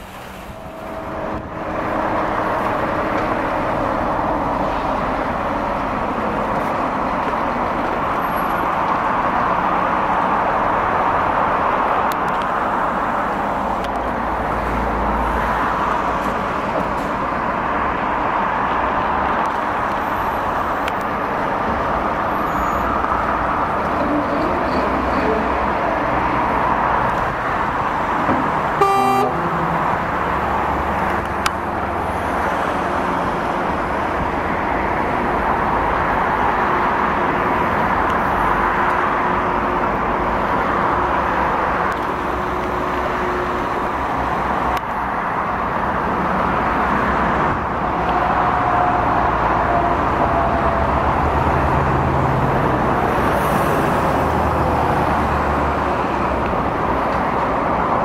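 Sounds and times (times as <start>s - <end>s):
heavy truck engines running: 0.0s - 58.0s
horn toot: 28.8s - 29.5s.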